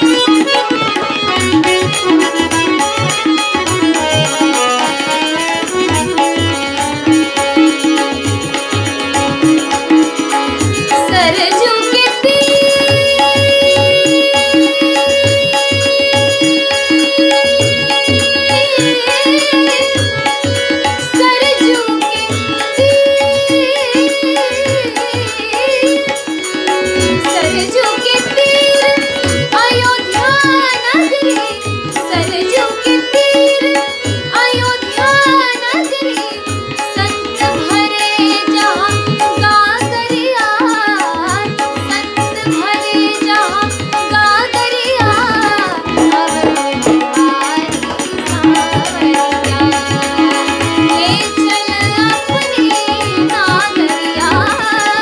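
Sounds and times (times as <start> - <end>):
harmonium drone: 0.0 - 55.0
tabla strokes: 0.0 - 55.0
woman singing: 0.0 - 55.0.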